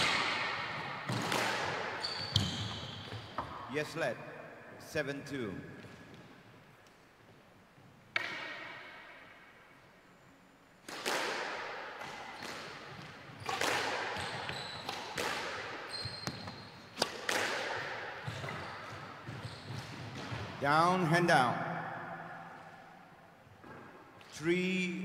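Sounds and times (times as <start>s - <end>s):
squash ball hits echoing: 0.0s - 3.7s, 8.1s - 9.4s, 10.8s - 21.0s
shoes squeaking on wooden floor: 2.0s - 3.6s, 14.2s - 15.0s, 15.9s - 17.0s, 18.2s - 20.4s.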